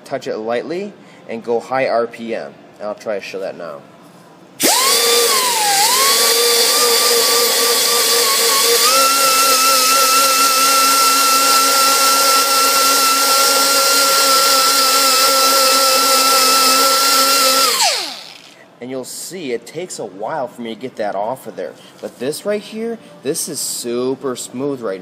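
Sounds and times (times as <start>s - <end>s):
grinder high-pitched whine: 4.6s - 18.6s.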